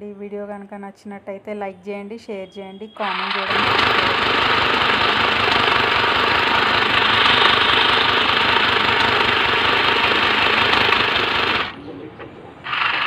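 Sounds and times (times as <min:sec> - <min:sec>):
sewing machine running: 0:03.0 - 0:11.8, 0:12.7 - 0:13.0.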